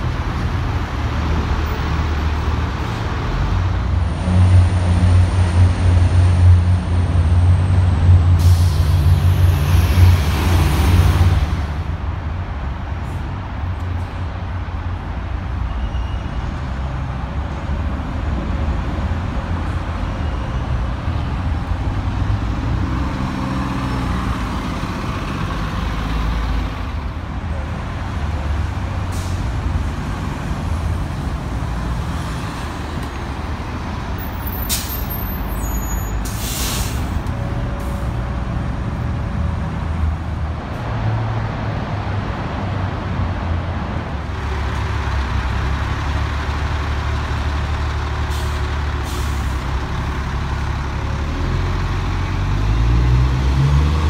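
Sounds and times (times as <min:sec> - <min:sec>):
bus engines running: 0:00.0 - 0:54.0
air brake hiss: 0:08.4 - 0:09.4, 0:34.4 - 0:37.2, 0:48.3 - 0:49.6.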